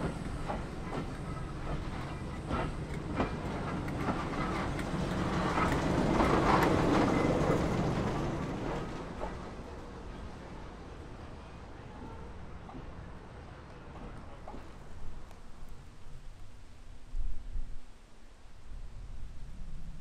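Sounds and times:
train wheels clicking over rail joints: 0:00.0 - 0:10.4, 0:11.9 - 0:15.5.

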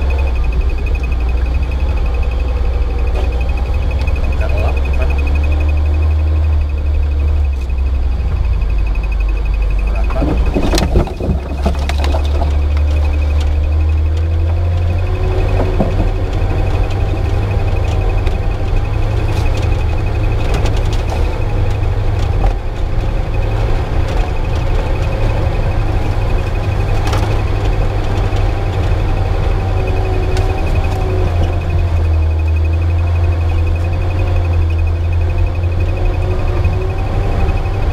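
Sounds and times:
car engine running: 0:00.0 - 0:37.9
vehicle knocking over bumps: 0:09.8 - 0:37.9.

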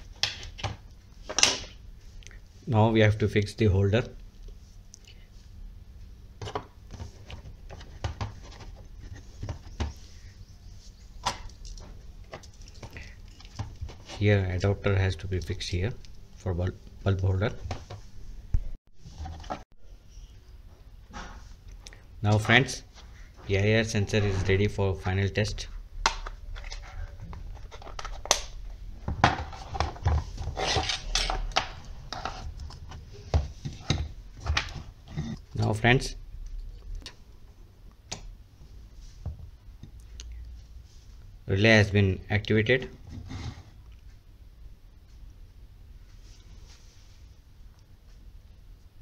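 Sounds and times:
plastic rubbing and scraping: 0:29.2 - 0:35.4.

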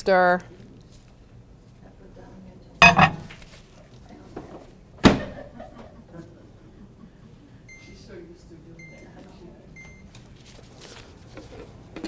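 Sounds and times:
clunk: 0:02.8 - 0:03.4
microwave door banging shut: 0:05.0 - 0:05.4.

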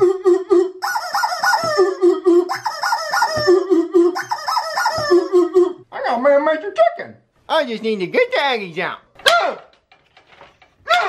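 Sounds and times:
rubber chicken squawking: 0:00.0 - 0:05.8.

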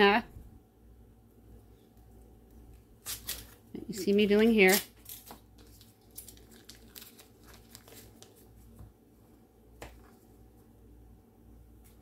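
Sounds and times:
paper wrapper crinkling: 0:03.0 - 0:08.8.

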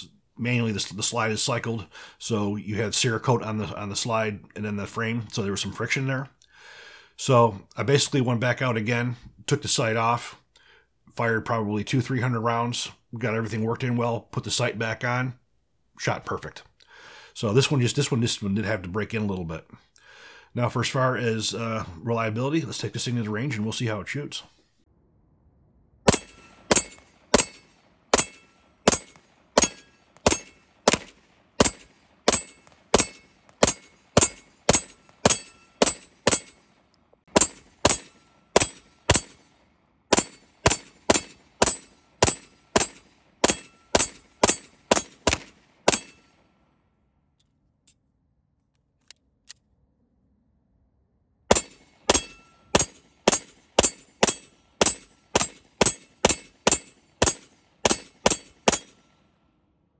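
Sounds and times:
pistol shots: 0:26.1 - 0:39.5, 0:40.1 - 0:46.3, 0:51.5 - 0:59.0.

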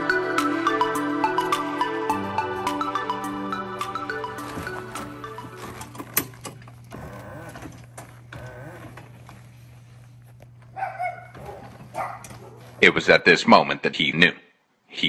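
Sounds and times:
electric motor hum and whine: 0:05.2 - 0:12.5.

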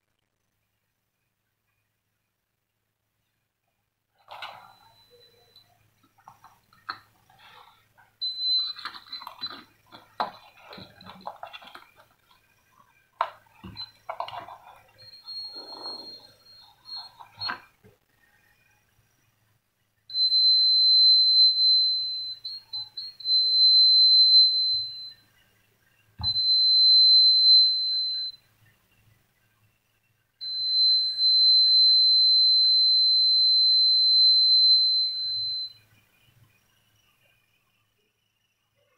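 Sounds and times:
electronic buzzer beeping: 0:13.6 - 0:17.6, 0:20.2 - 0:25.2.

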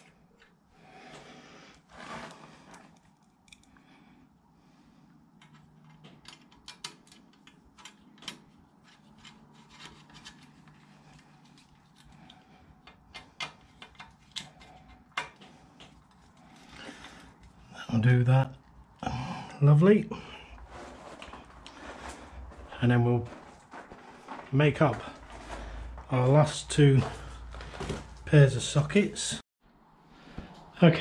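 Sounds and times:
hand tools clicking and snipping: 0:05.4 - 0:17.0.

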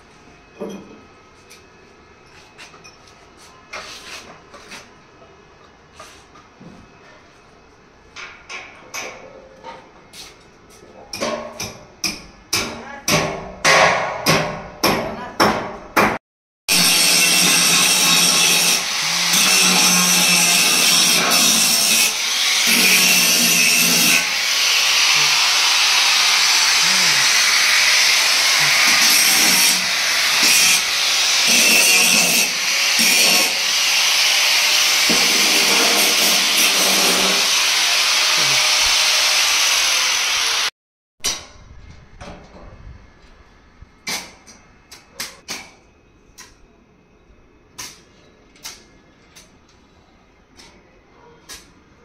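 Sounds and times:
angle grinder grinding steel: 0:16.7 - 0:40.7.

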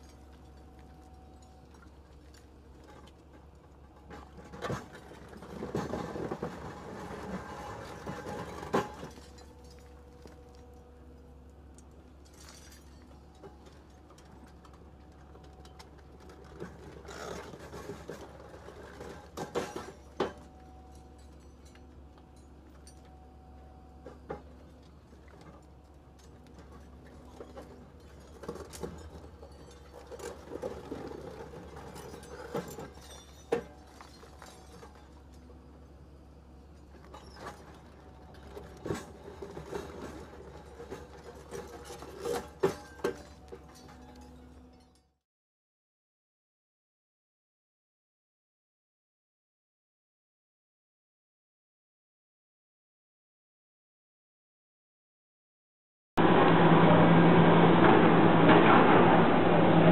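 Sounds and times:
machine hum: 0:56.2 - 0:59.9.

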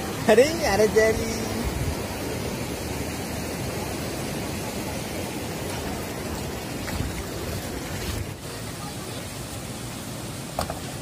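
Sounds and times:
river rushing over boulders: 0:00.0 - 0:11.0.

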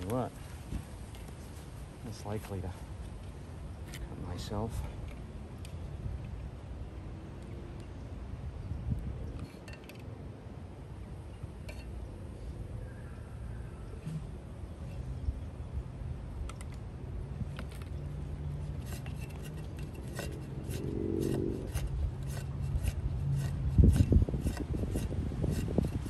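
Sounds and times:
metallic clicks and scrapes: 0:18.6 - 0:26.0.

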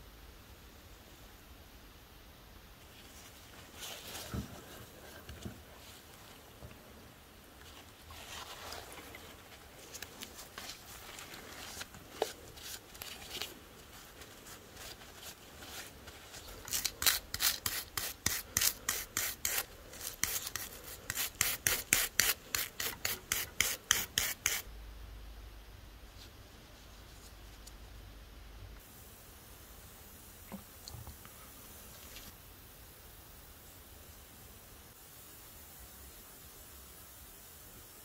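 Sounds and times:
stiff brush scrubbing metal: 0:14.2 - 0:24.6.

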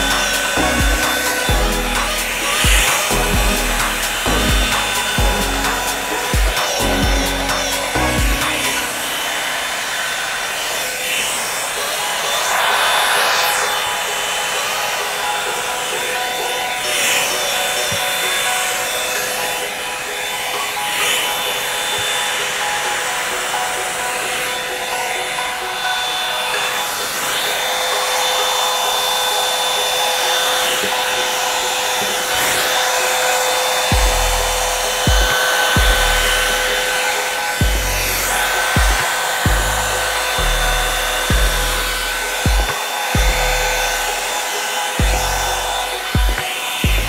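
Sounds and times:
hair dryer air and motor whine: 0:00.0 - 0:47.0.

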